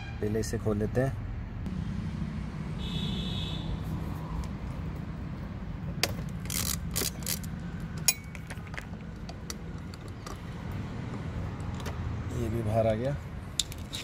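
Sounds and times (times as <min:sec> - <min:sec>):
hand ratchet clicking: 0:06.0 - 0:08.3
light metal clinks: 0:08.0 - 0:08.6.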